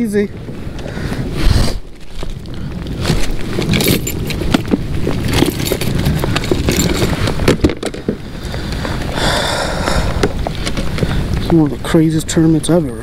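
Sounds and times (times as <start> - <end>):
tools and lures clattering: 3.0 - 8.2.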